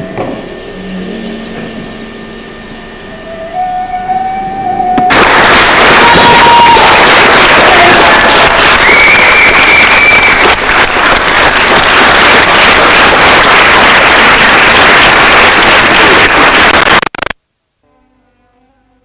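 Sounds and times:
short high whistle-like tone: 3.1s - 5.3s, 8.8s - 10.5s
audience applauding: 5.0s - 17.4s.

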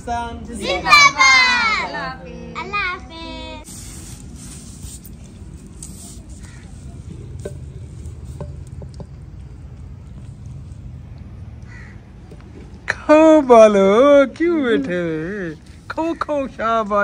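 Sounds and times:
low steady rumble: 1.4s - 16.0s
wooden ladle scraping clay pot: 5.1s - 9.2s.

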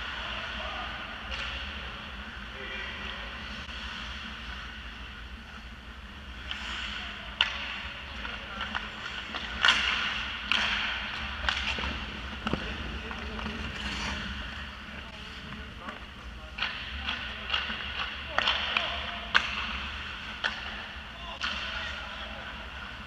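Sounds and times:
steady low hum: 0.0s - 23.0s
hockey sticks and puck cracking: 1.2s - 2.4s, 6.3s - 23.0s
skates scraping on ice: 8.2s - 15.7s.

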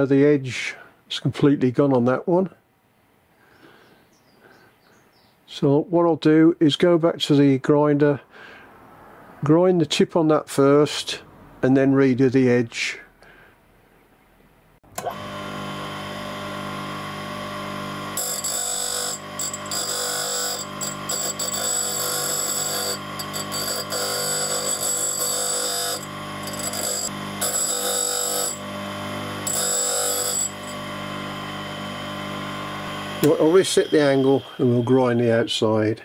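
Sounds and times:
grinder motor humming: 15.0s - 35.5s
high-pitched metal grinding: 18.2s - 35.6s.

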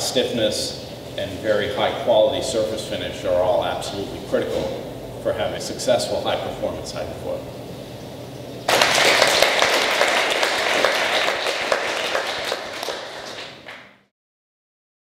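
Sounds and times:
audience applauding: 8.7s - 14.1s.

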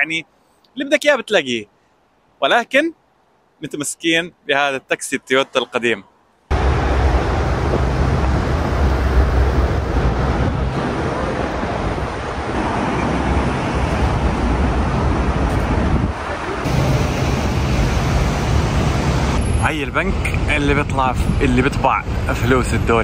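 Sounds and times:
city traffic rushing: 5.3s - 23.0s
wind buffeting microphone: 6.5s - 23.0s.

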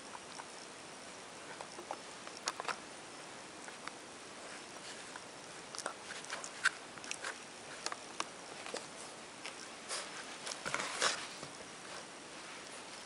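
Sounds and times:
teeth crunching on rawhide: 1.5s - 2.8s, 5.1s - 9.7s.

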